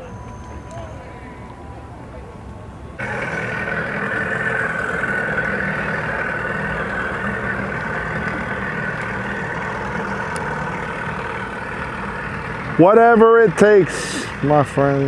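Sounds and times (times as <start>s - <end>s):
high-pitched motor whine: 0.0s - 15.0s
outboard motor running: 0.0s - 15.0s.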